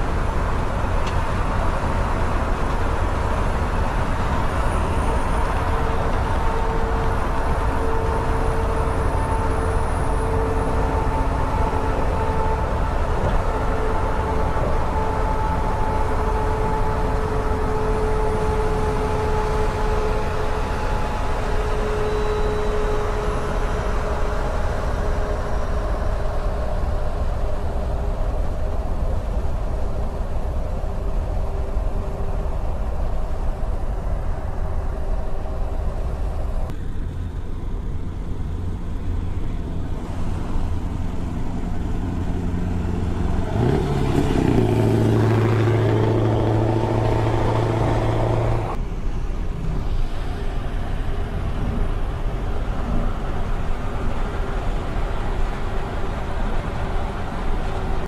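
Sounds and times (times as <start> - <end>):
low multi-tone horn sound: 0.0 - 27.6, 39.8 - 48.8
truck road and wind rumble: 0.0 - 58.0.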